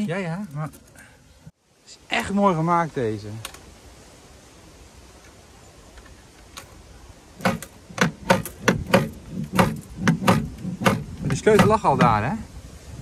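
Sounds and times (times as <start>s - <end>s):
sharp mechanical clacks: 7.4s - 12.2s.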